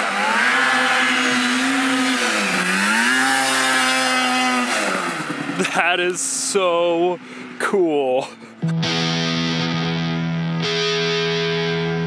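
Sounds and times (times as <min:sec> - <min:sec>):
snowmobile engine revving high: 0:00.0 - 0:07.4.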